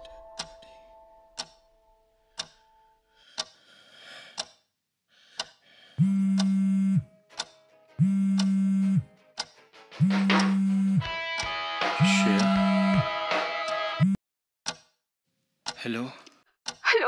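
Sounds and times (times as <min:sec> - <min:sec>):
clock ticking: 0:00.0 - 0:00.8, 0:01.4 - 0:01.6, 0:02.4 - 0:02.7, 0:03.3 - 0:03.6, 0:04.3 - 0:04.7, 0:05.3 - 0:13.0, 0:14.7 - 0:14.9, 0:15.6 - 0:17.0
phone vibrating: 0:06.0 - 0:07.1, 0:08.0 - 0:09.0, 0:10.0 - 0:11.0.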